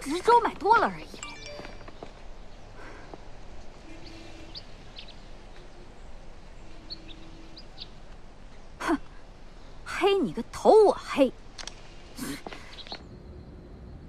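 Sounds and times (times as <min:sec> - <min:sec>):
outdoor background ambience: 0:00.0 - 0:14.0.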